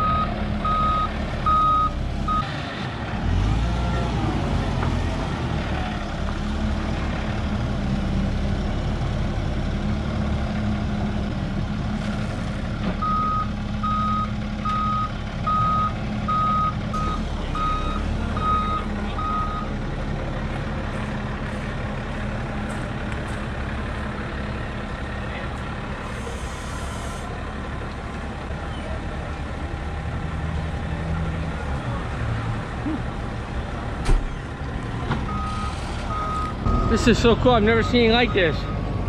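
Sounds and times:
reversing alarm beeping: 0.0 - 2.4, 13.0 - 19.7, 35.3 - 37.1
diesel engine running: 0.0 - 39.0.

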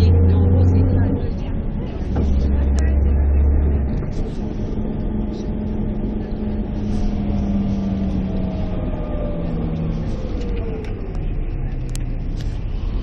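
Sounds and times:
deep low hum: 0.0 - 13.0
vehicle road and engine noise: 0.0 - 13.0.

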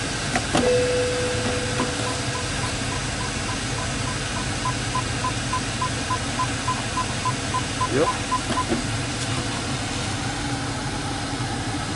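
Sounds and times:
car engine idling: 0.0 - 11.9
steady warning tone: 0.6 - 8.7
short high beeps: 0.7 - 8.7.

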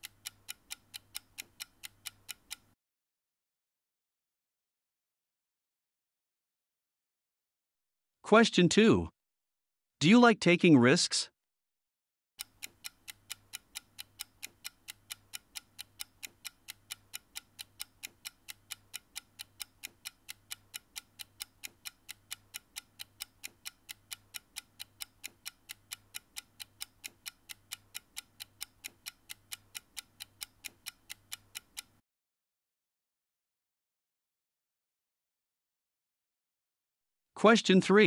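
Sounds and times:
clock ticking rapidly: 0.0 - 2.8, 12.4 - 32.0.

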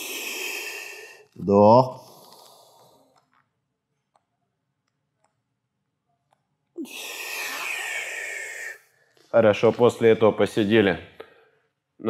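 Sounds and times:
man breathing: 0.0 - 1.4, 2.0 - 3.3, 6.8 - 9.3.

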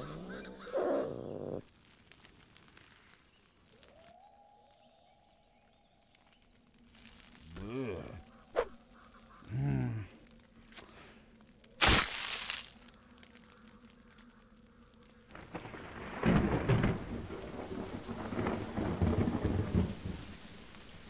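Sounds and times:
rolling thunder rumble: 15.4 - 21.0
thunder crack: 15.5 - 20.4.

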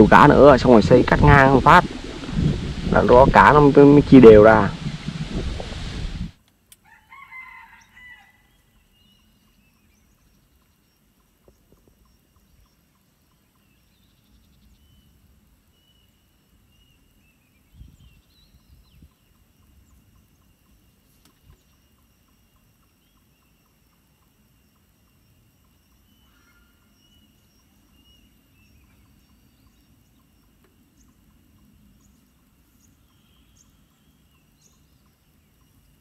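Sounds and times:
low bumps: 0.0 - 6.4
rooster crowing: 6.8 - 8.7
faint distant bird calls: 6.8 - 36.0.

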